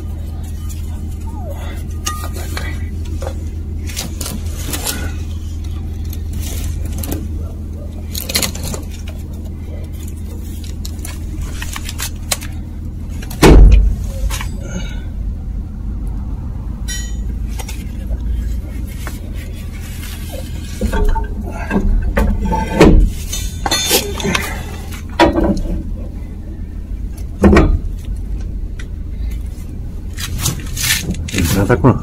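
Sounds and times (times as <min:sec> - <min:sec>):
steady low hum: 0:00.0 - 0:32.0
metal clinks and knocks: 0:01.9 - 0:03.4, 0:16.8 - 0:17.9, 0:20.7 - 0:25.8
heavy thump: 0:13.4 - 0:14.0.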